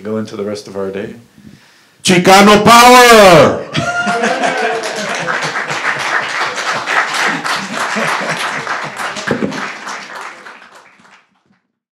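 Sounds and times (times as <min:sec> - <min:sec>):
audience applauding: 0:03.8 - 0:11.6.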